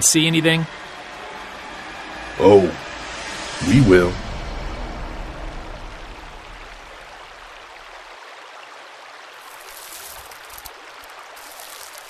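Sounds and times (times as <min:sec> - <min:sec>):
creek flowing: 0:00.0 - 0:12.0
water splashing: 0:05.7 - 0:12.0.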